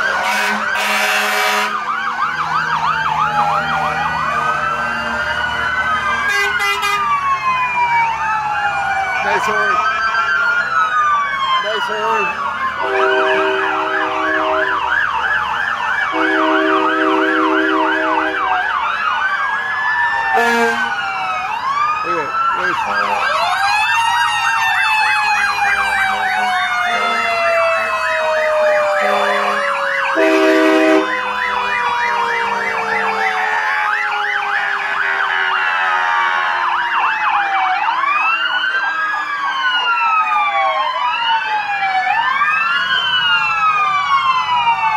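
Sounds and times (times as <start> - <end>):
fire truck sirens wailing: 0.0 - 44.9
long horn blasts: 0.2 - 1.8, 6.3 - 7.1, 12.8 - 14.8, 16.1 - 18.5, 20.4 - 20.9, 29.0 - 29.6, 30.2 - 31.1.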